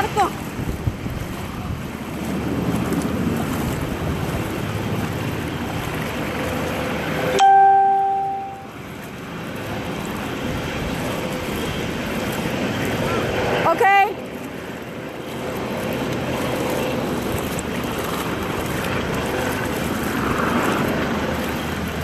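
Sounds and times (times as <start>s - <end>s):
floodwater sloshing while wading: 0.0s - 22.0s
loud single tone: 7.3s - 8.7s.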